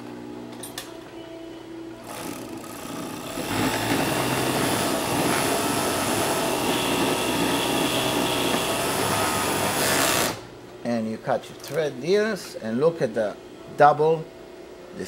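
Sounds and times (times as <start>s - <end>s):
sewing machine whirring: 2.1s - 10.4s.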